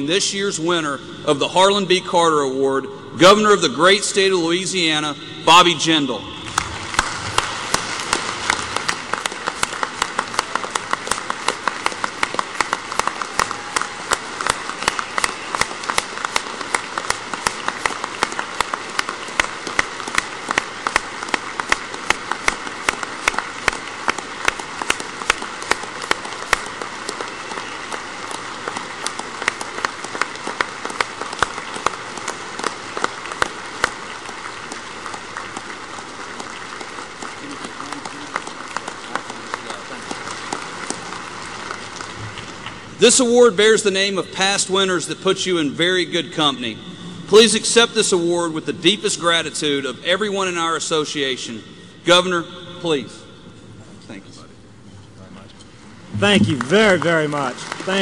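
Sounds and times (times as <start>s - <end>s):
audience applauding: 4.8s - 45.0s, 55.9s - 58.0s
person clapping close to microphone: 6.4s - 43.0s.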